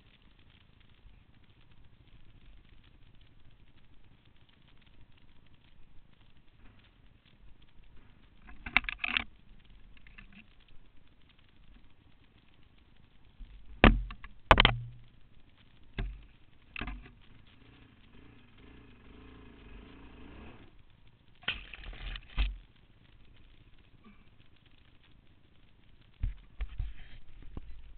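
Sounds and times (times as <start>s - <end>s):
faint low hum: 0.0s - 27.9s
atv jolting over rough ground: 13.3s - 23.1s.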